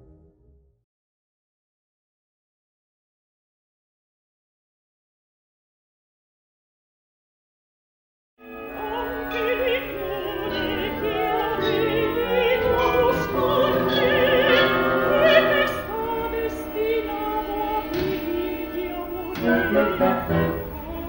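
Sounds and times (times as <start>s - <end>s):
orchestra playing sustained chords: 8.4s - 21.0s
operatic voice singing: 8.7s - 21.0s.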